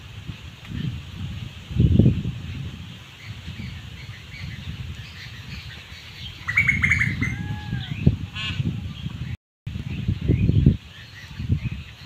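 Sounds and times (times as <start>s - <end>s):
bird chirping: 3.2s - 9.1s
bird rattling call: 5.2s - 7.5s.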